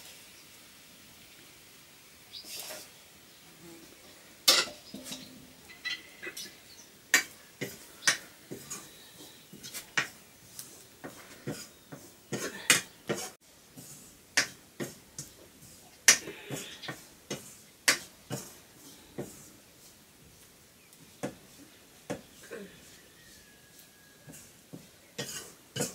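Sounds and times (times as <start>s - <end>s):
metal spoon scraping frying pan: 4.4s - 10.1s, 25.2s - 25.9s.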